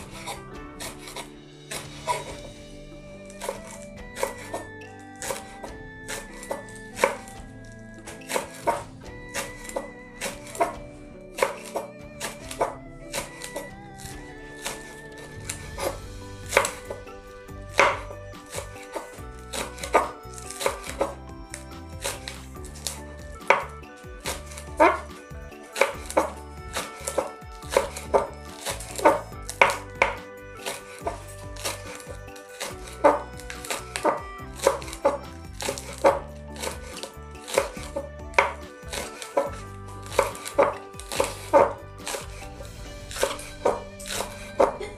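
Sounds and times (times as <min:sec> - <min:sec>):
knife striking chopping board: 0:05.2 - 0:07.3, 0:08.1 - 0:10.8, 0:15.8 - 0:17.0, 0:17.7 - 0:22.2, 0:25.7 - 0:42.4.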